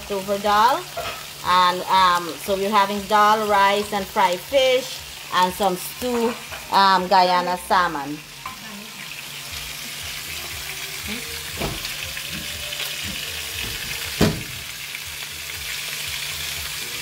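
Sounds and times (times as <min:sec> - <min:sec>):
fish sizzling in hot oil: 0:00.0 - 0:17.0.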